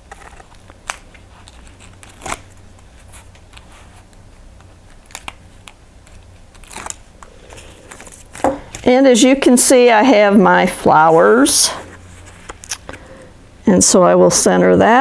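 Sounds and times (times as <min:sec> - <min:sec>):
paper clicks and crinkles: 0:00.0 - 0:08.9
low steady hum: 0:00.0 - 0:15.0.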